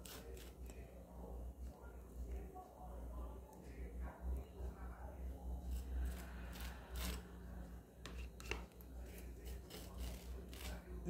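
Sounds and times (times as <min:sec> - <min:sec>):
butter knife scraping: 0:00.0 - 0:00.8, 0:05.6 - 0:07.4, 0:08.0 - 0:11.0
low steady hum: 0:00.0 - 0:11.0.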